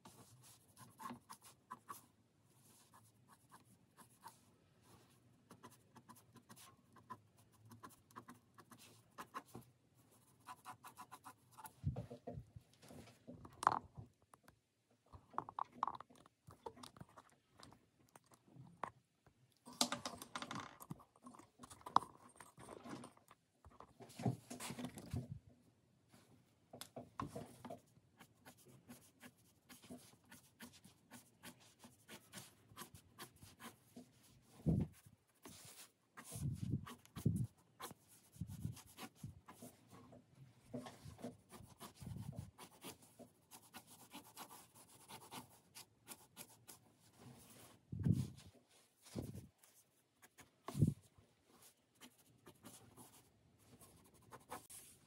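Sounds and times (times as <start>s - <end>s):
pen scratching on paper: 0.0s - 2.0s, 5.5s - 9.6s, 10.2s - 11.8s, 27.7s - 34.2s, 34.9s - 39.8s, 41.2s - 46.8s, 52.0s - 53.2s, 53.8s - 54.9s.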